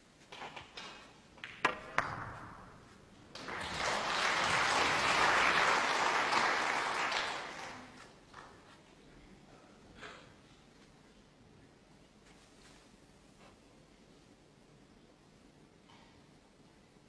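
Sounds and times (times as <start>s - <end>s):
snooker balls clicking: 0.4s - 3.2s
audience applause: 3.2s - 8.5s.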